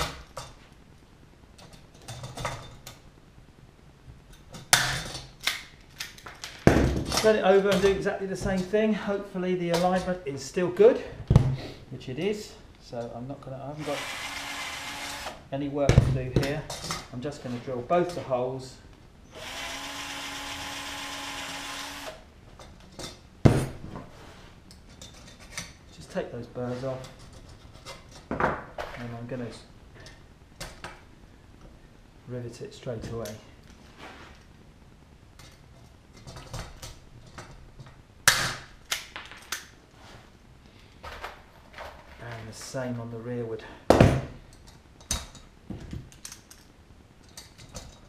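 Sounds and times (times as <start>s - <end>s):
cordless drill drilling: 13.8s - 15.4s, 19.3s - 22.2s.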